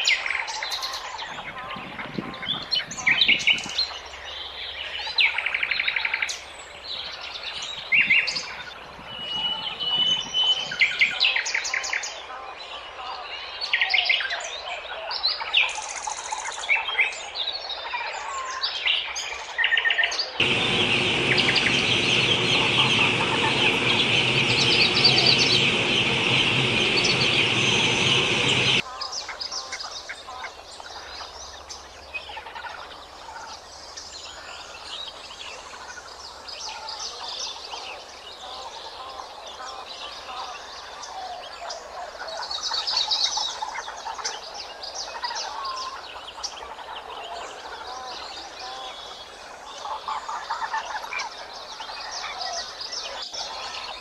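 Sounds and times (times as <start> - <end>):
chicks peeping: 20.4 - 28.8.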